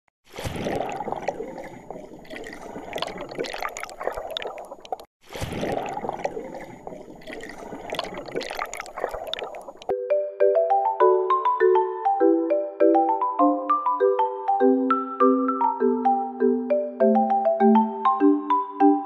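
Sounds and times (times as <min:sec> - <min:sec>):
water bubbling and gurgling: 0:00.2 - 0:09.9.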